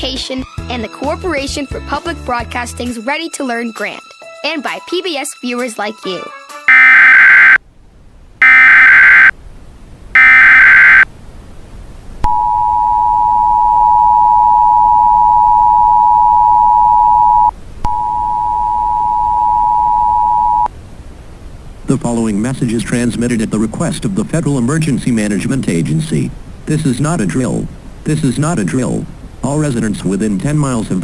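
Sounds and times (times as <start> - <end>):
screeching data tone bursts: 6.7 - 7.6, 8.4 - 9.3, 10.2 - 11.0
two-tone alert signal: 6.7 - 7.6, 8.4 - 9.3, 10.2 - 11.0.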